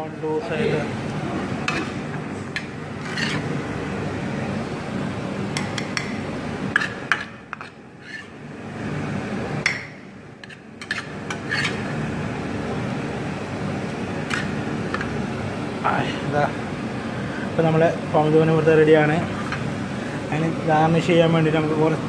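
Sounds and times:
steady low hum: 0:00.0 - 0:22.0
spatula scraping a frying pan: 0:01.6 - 0:02.0, 0:02.9 - 0:03.6, 0:06.7 - 0:08.4, 0:10.4 - 0:11.9, 0:14.3 - 0:14.6.

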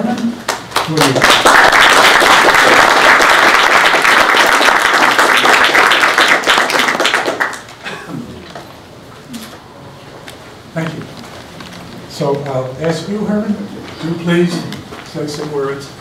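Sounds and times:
audience applauding: 0:00.4 - 0:07.8.

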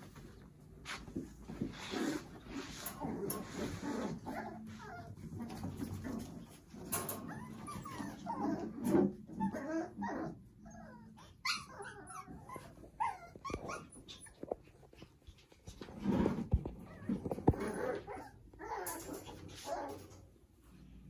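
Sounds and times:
puppies whimpering and yipping: 0:03.0 - 0:14.6, 0:16.8 - 0:20.0.

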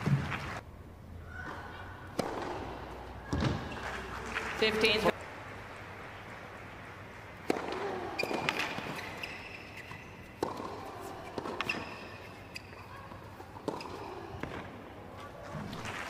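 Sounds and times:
rackets striking tennis ball: 0:01.4 - 0:05.1, 0:07.2 - 0:14.8
shoe squeaks on court: 0:08.2 - 0:14.2.

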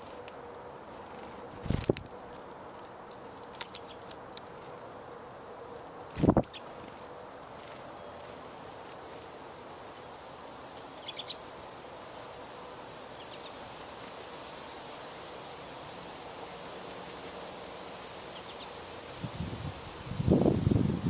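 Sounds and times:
outdoor background hiss: 0:00.0 - 0:21.0
finch chirps: 0:06.2 - 0:06.7, 0:10.9 - 0:11.4, 0:18.3 - 0:18.8.

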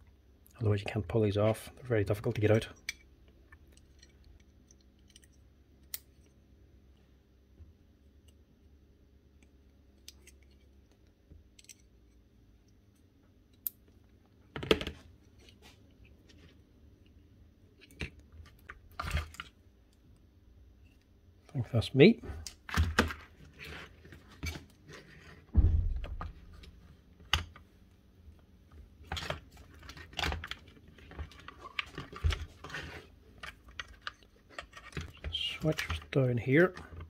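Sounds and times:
loud knocks: 0:25.5 - 0:26.7.

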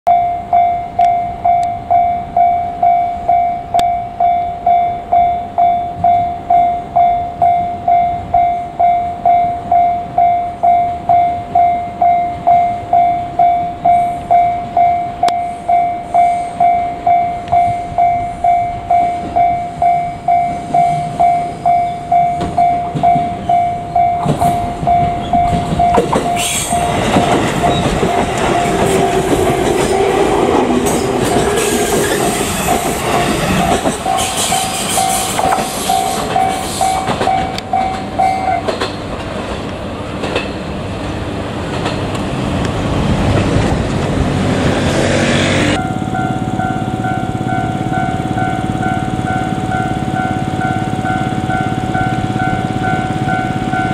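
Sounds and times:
level crossing warning bell: 0:00.1 - 0:31.9, 0:32.5 - 0:38.8, 0:45.8 - 0:53.9
train wheels rolling: 0:15.8 - 0:53.9.

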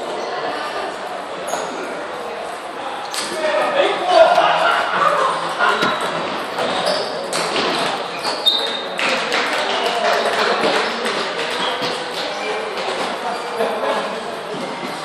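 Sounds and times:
high squeaks: 0:05.7 - 0:07.4, 0:08.1 - 0:08.8.

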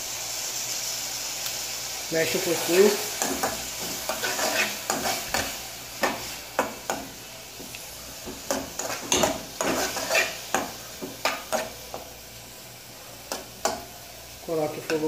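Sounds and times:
onions sizzling in oil: 0:00.0 - 0:15.0
utensil scraping a pan: 0:03.2 - 0:06.7, 0:08.3 - 0:11.8.

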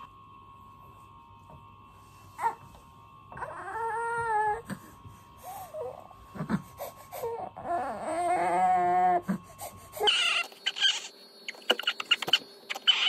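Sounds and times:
baby crying and whimpering: 0:02.4 - 0:02.6, 0:03.4 - 0:04.9, 0:05.5 - 0:11.1, 0:11.7 - 0:13.0.

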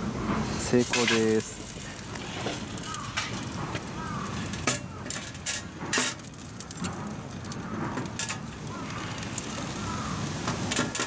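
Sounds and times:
steady background hiss: 0:00.0 - 0:11.0
steel tongs clinking on metal: 0:00.8 - 0:01.5.

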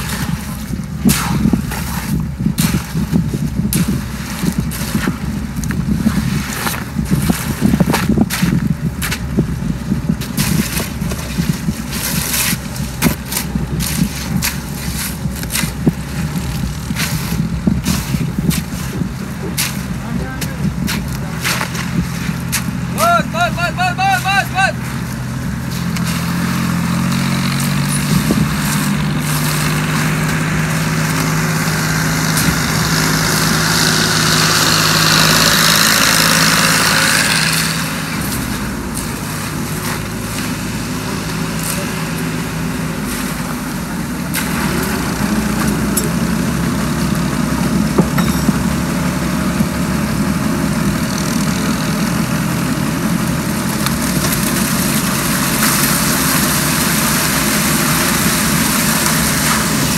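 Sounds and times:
diesel engine running: 0:00.0 - 0:59.9
wet concrete rushing down chute: 0:24.7 - 0:59.9.

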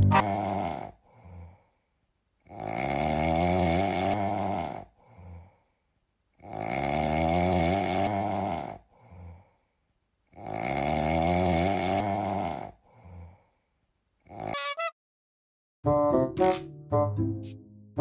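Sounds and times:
faint breath: 0:01.0 - 0:02.0, 0:04.9 - 0:06.0, 0:08.8 - 0:09.9, 0:12.8 - 0:13.8.

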